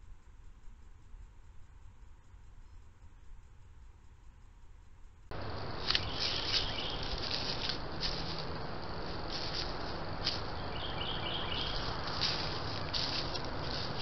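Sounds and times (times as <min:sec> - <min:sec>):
steady hiss: 0:00.0 - 0:14.0
footsteps rustling in dry leaves: 0:05.3 - 0:14.0.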